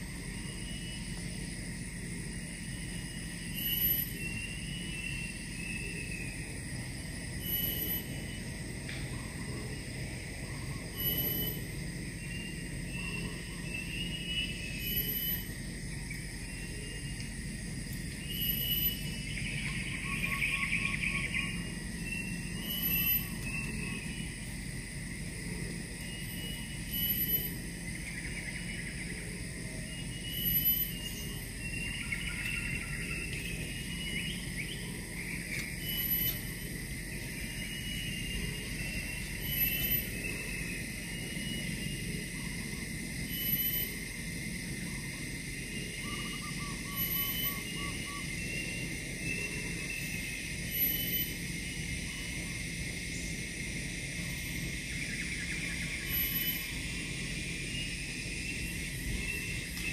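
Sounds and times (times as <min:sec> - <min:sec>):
steady high drone: 0:00.0 - 0:59.9
very high chirps: 0:18.2 - 0:24.4, 0:46.0 - 0:48.8
mid-pitched calls: 0:18.2 - 0:25.2, 0:29.8 - 0:59.9.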